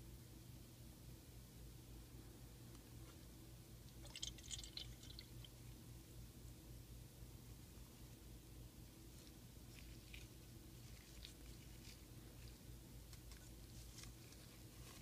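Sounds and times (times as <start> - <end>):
low steady hum: 0.0 - 15.0
face mask crackling and rustling: 9.1 - 15.0.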